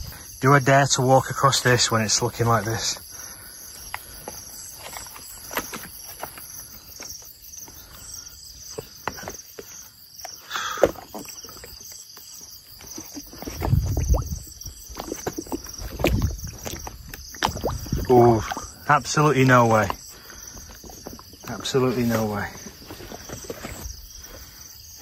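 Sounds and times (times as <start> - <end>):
insects chirring: 0.0 - 25.0.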